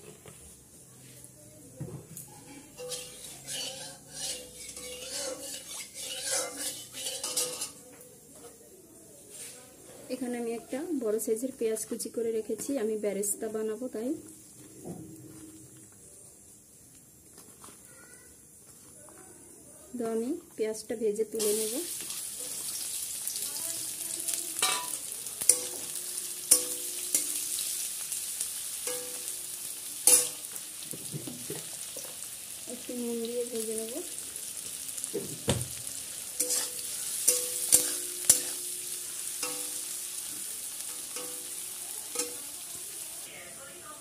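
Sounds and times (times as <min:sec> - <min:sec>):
onions sizzling in oil: 0:00.0 - 0:08.4, 0:10.1 - 0:18.6, 0:19.4 - 0:44.0
spatula scraping a wok: 0:02.6 - 0:07.8, 0:23.9 - 0:32.4, 0:35.9 - 0:43.0.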